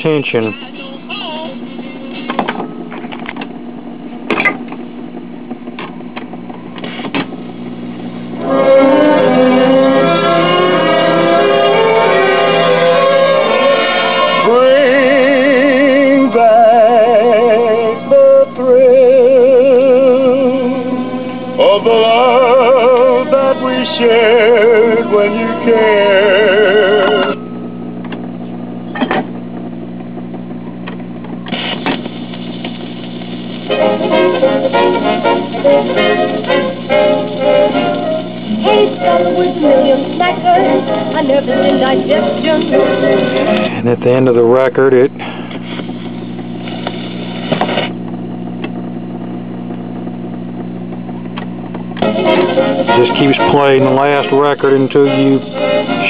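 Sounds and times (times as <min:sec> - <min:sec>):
mains hum: 0:00.0 - 0:56.0
record playing singer with vibrato: 0:00.3 - 0:43.8, 0:45.4 - 0:56.0
record changer clunks: 0:01.8 - 0:07.5, 0:27.4 - 0:44.6, 0:45.2 - 0:48.8.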